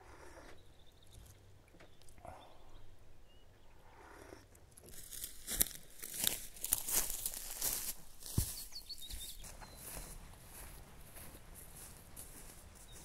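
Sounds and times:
footsteps crunching dry grass: 0:04.8 - 0:13.0.

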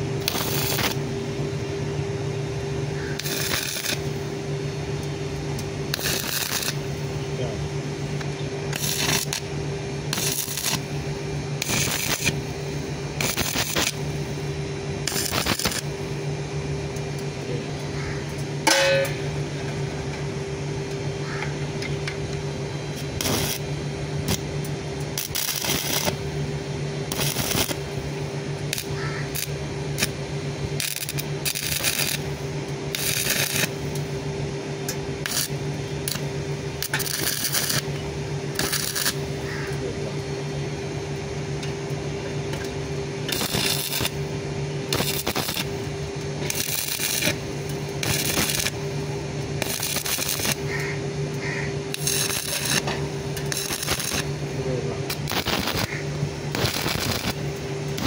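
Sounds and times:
welding arc crackle: 0:00.0 - 0:01.2, 0:03.0 - 0:07.2, 0:08.1 - 0:16.2, 0:22.9 - 0:34.3, 0:34.9 - 0:39.9, 0:42.5 - 0:58.0
steady hum: 0:00.0 - 0:58.0.

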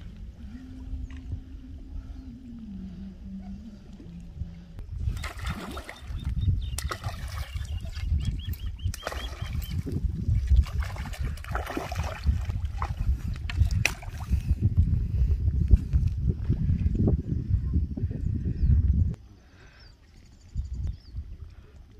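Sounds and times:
heavy low rumble: 0:00.0 - 0:05.2, 0:09.8 - 0:19.2
fish splashing in water: 0:05.0 - 0:14.3.

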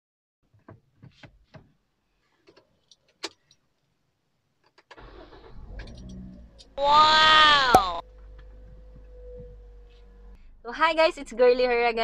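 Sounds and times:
car engine starting and rumbling: 0:04.9 - 0:12.0.

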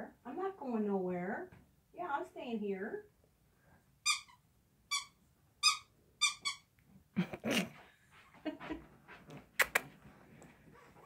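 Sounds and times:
squeaky dog toy squeaking: 0:04.0 - 0:06.7
shuffling: 0:07.6 - 0:11.0.

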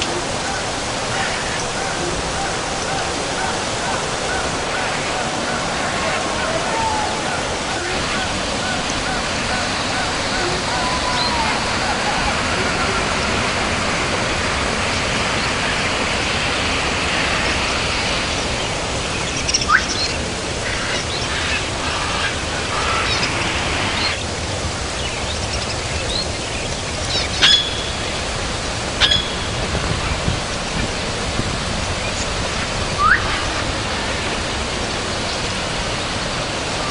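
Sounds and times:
waterfall rushing: 0:00.0 - 0:36.9
small birds chirping: 0:29.0 - 0:29.7.

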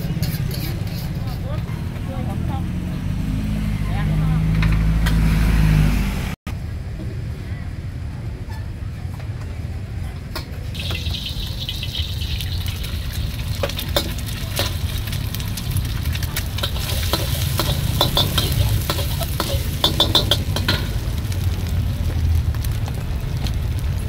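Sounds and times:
metal spatula scraping a wok: 0:00.0 - 0:01.8, 0:10.8 - 0:21.0
egg sizzling in oil: 0:10.8 - 0:22.7
low rumble: 0:14.7 - 0:24.0.

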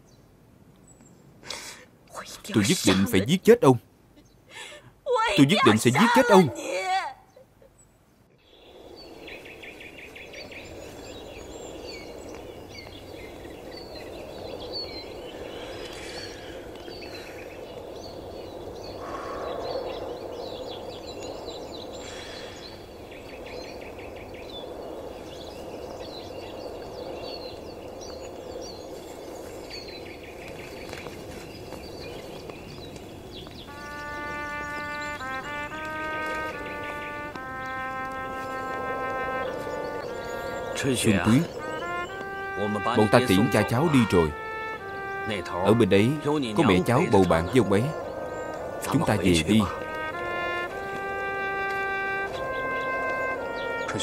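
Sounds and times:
small birds chirping: 0:00.0 - 0:54.0
steady background hiss: 0:00.0 - 0:54.0
music with brass: 0:33.7 - 0:54.0.

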